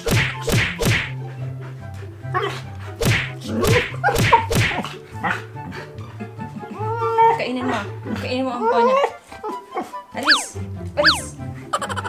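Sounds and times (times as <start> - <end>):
sharp smacking hits: 0.0 - 1.2, 3.0 - 4.9
low background music: 0.0 - 12.0
dogs yipping: 1.0 - 12.0.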